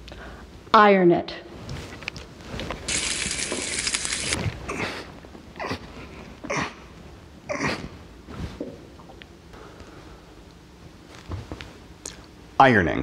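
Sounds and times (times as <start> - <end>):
steam iron hissing: 2.9 - 4.4.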